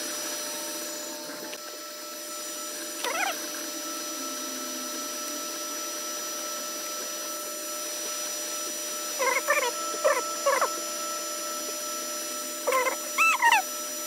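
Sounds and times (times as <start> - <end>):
cooling fans whirring: 0.0 - 14.0
stepper motors humming: 0.0 - 14.0
squeaky chirps sliding in pitch: 3.0 - 3.4, 9.2 - 10.8, 12.6 - 13.7.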